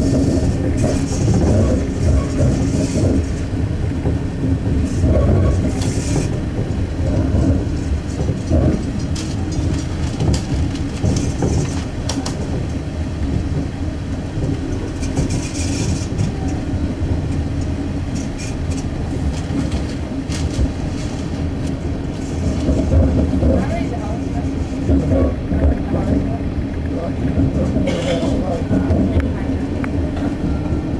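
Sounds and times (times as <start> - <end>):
wheels clicking over rail joints: 0.0 - 30.8
train engine and wheels rumbling: 0.0 - 30.9.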